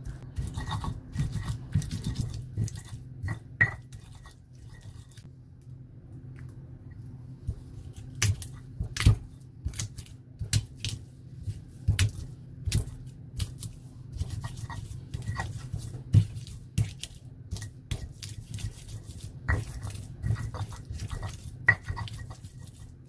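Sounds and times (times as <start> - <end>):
stone pestle knocking in mortar: 19.5 - 22.4.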